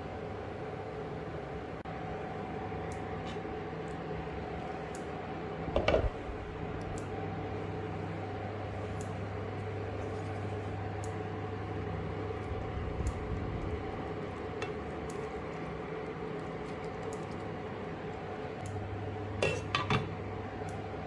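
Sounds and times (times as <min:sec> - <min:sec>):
electric hob humming: 0:00.0 - 0:21.0
rice simmering with faint pops: 0:02.2 - 0:21.0.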